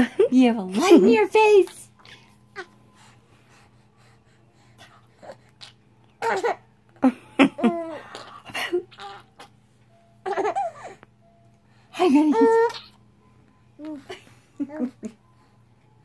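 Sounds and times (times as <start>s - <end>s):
baby giggling and squealing: 7.6s - 9.5s, 12.3s - 13.0s.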